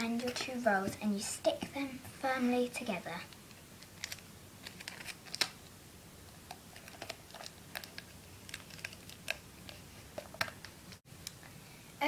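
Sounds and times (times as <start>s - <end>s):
handling cardboard tubes and tape: 3.4s - 5.6s, 6.4s - 11.0s.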